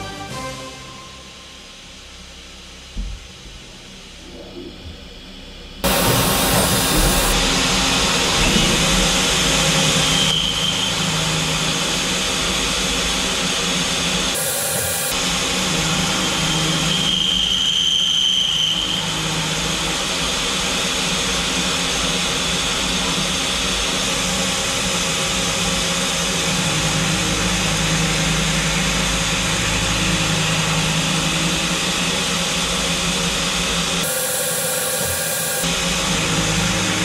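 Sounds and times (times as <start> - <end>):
low hum: 1.0 - 17.7
metal milling machine cutting: 5.8 - 37.0.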